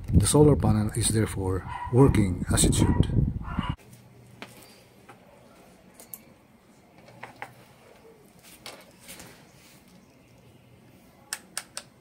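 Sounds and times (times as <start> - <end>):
handling rustles: 6.9 - 10.5.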